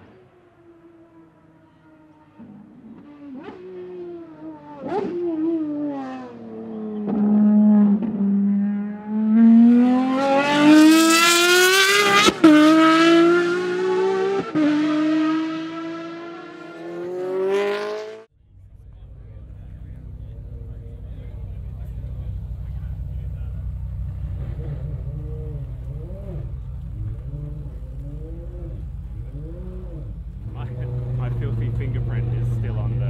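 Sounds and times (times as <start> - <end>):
race car engine revving: 0.0 - 33.0
exhaust cracks on downshifts: 18.5 - 33.0.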